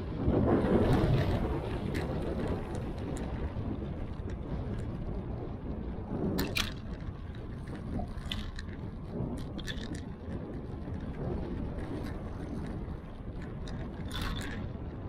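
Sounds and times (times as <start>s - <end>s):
wind rumbling on microphone: 0.0s - 15.0s
sharp clicks and rattles: 6.2s - 15.0s.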